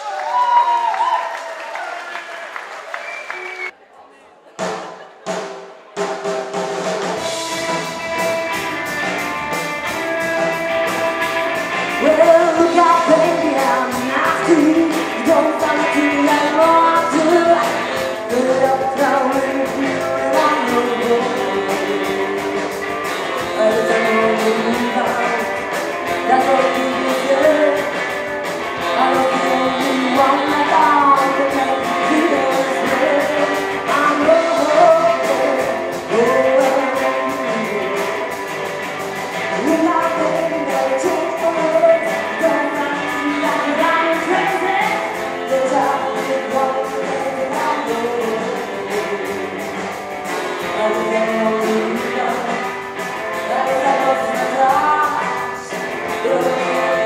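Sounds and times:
live rockabilly band: 0:00.0 - 0:03.7, 0:04.5 - 0:57.0
person singing lead: 0:11.8 - 0:38.4, 0:39.5 - 0:57.0.

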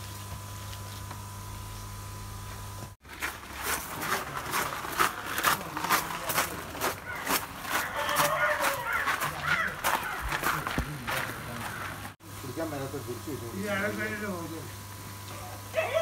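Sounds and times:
steady hum: 0:00.0 - 0:08.0
footsteps on gravel: 0:02.5 - 0:12.2
plastic bags crackling: 0:03.0 - 0:10.7.

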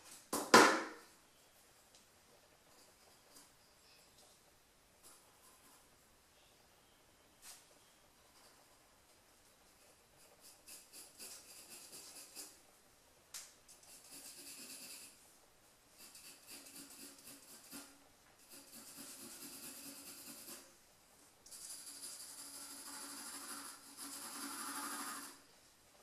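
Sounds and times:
pencil scratching on paper: 0:09.6 - 0:12.6, 0:13.8 - 0:15.2, 0:16.0 - 0:20.7, 0:21.5 - 0:25.4.

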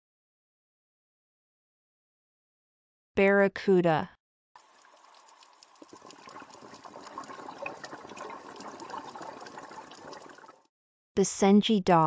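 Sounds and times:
small crackling clicks: 0:04.6 - 0:09.6.

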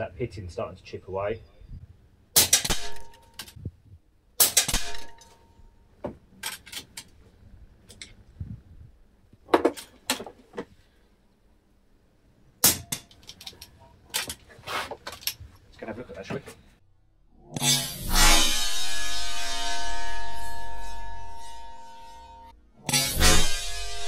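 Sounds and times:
air rifle shots: 0:02.4 - 0:03.2, 0:04.4 - 0:05.2.

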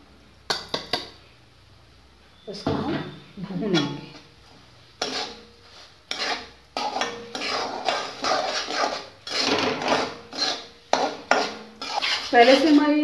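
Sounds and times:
metal spatula scraping a pan: 0:03.5 - 0:13.0.

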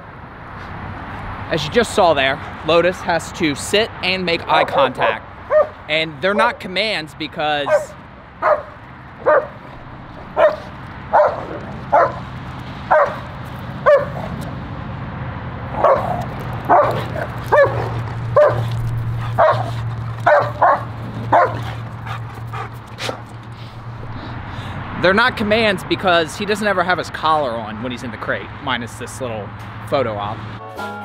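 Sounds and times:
dog barking: 0:04.6 - 0:05.8, 0:07.6 - 0:09.6, 0:10.4 - 0:12.2, 0:12.9 - 0:14.3, 0:15.8 - 0:21.8.

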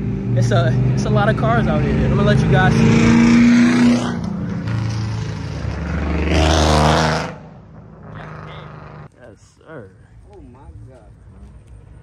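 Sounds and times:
car engine revving: 0:00.0 - 0:09.2.

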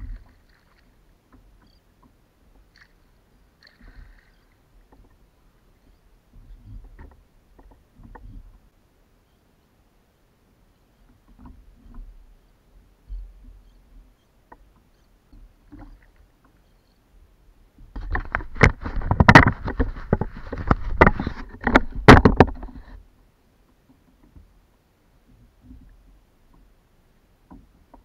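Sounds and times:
fish knocking on plastic kayak: 0:18.0 - 0:22.7.

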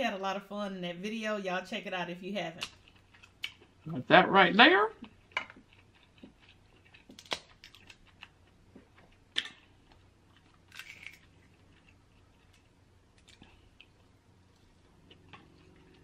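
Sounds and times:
crab shell cracking: 0:06.9 - 0:08.4, 0:10.5 - 0:11.3.

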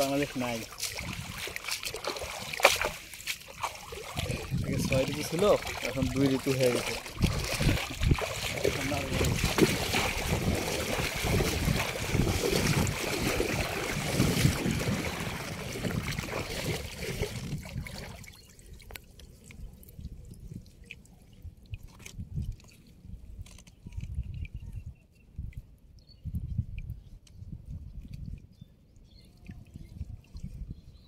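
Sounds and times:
hands rustling through mud: 0:00.0 - 0:18.2
water pouring through net: 0:00.0 - 0:19.0.

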